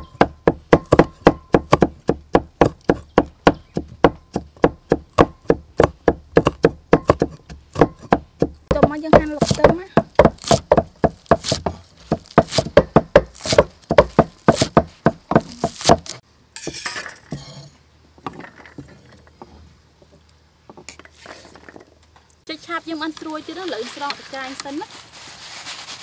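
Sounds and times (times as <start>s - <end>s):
cleaver chopping on wooden block: 0.0s - 16.2s.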